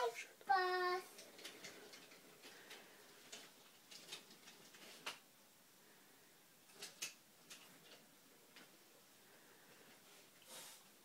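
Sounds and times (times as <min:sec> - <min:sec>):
wooden toy train clicks and knocks: 0:00.8 - 0:05.2, 0:06.7 - 0:08.8.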